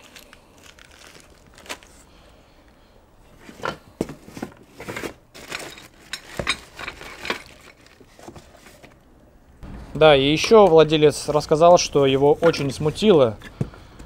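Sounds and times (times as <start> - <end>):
plastic bag crinkling: 0.0 - 2.1
metal bolts clinking in bag: 5.4 - 8.0.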